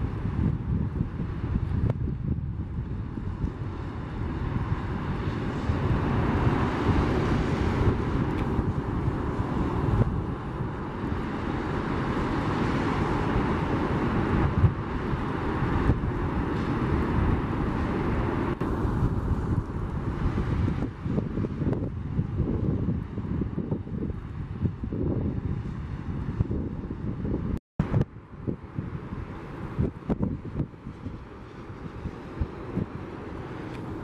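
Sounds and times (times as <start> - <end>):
jet engines roaring: 3.5 - 21.4.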